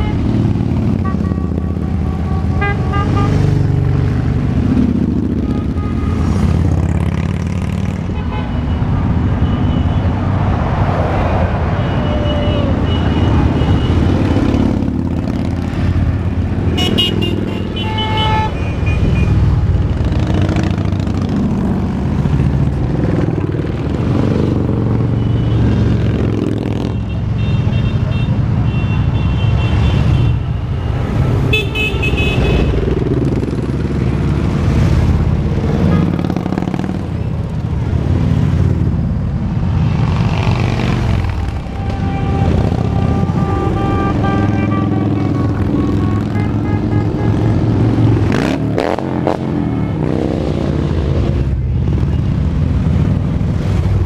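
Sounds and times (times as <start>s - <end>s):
horns tooting: 0.0s - 3.6s, 11.7s - 14.9s, 16.6s - 19.4s, 26.4s - 32.9s, 41.1s - 50.3s
motorcycles riding past: 3.2s - 8.2s, 10.2s - 17.8s, 18.5s - 28.6s, 30.9s - 54.0s.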